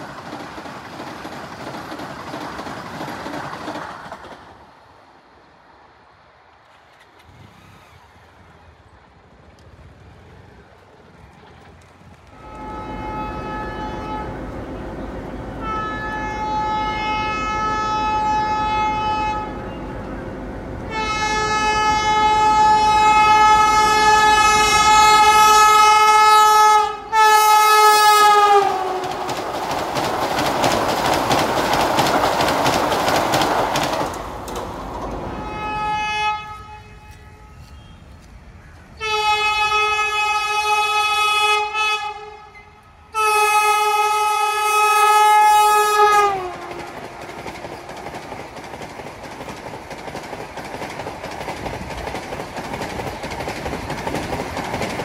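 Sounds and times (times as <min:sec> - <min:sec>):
passing train clattering: 0:00.0 - 0:55.0
train horn blasts: 0:12.3 - 0:29.3, 0:35.3 - 0:38.2, 0:39.0 - 0:47.4.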